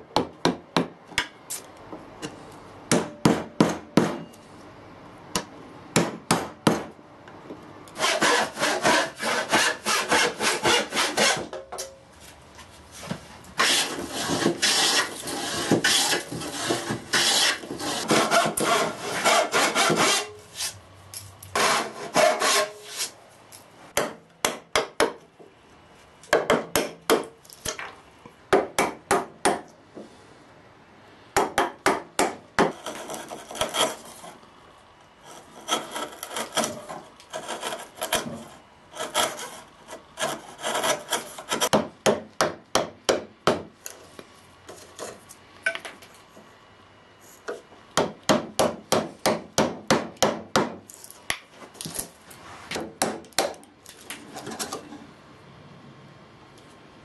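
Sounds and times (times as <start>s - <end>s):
chisel knocking on wood: 2.9s - 4.3s, 24.0s - 25.2s, 26.3s - 27.3s, 41.6s - 43.7s, 48.0s - 50.8s, 52.8s - 53.6s
hand plane shaving wood: 8.0s - 11.5s, 13.6s - 20.7s, 21.6s - 23.1s, 35.3s - 41.7s.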